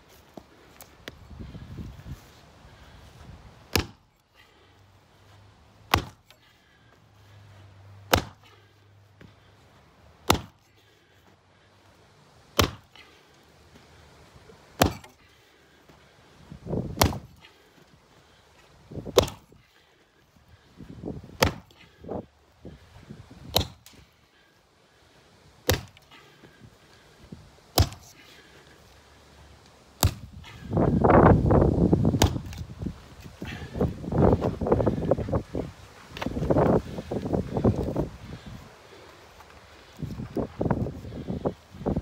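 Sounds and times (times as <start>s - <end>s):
axe chopping wood: 3.7s - 4.0s, 5.9s - 6.4s, 8.0s - 8.6s, 10.2s - 10.7s, 12.5s - 13.1s, 14.8s - 15.2s, 16.8s - 17.5s, 19.1s - 19.6s, 21.4s - 22.0s, 23.4s - 24.0s, 25.6s - 26.2s, 27.7s - 28.2s, 30.0s - 30.7s, 32.1s - 32.7s.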